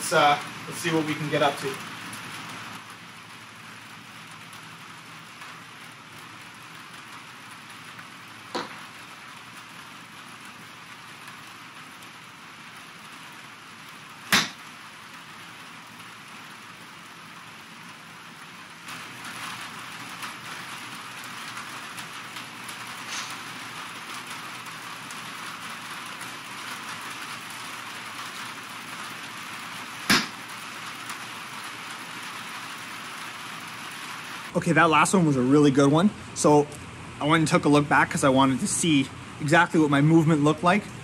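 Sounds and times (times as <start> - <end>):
steady rain hiss: 0.0 - 41.0
golf club striking ball: 8.5 - 8.8, 14.3 - 14.6, 30.1 - 30.4.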